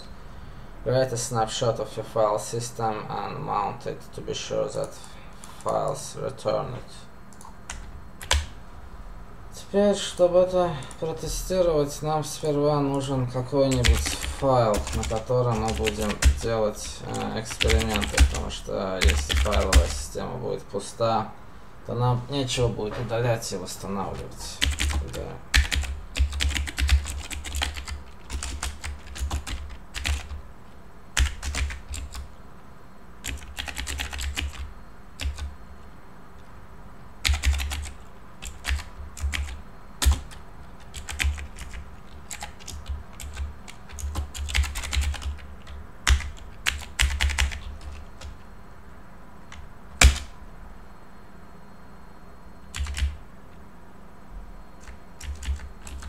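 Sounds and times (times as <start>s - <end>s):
typing on computer keyboard: 7.3s - 8.5s, 13.7s - 20.0s, 24.2s - 30.4s, 31.2s - 32.3s, 33.2s - 35.5s, 37.2s - 48.4s, 49.5s - 50.3s, 52.7s - 53.2s, 54.8s - 56.0s.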